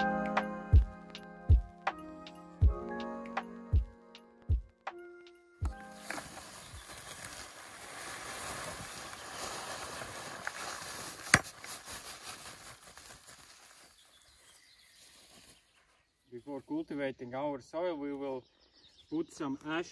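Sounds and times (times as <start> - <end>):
background music: 0.0 - 6.8
ash pouring from a sack: 5.9 - 13.8.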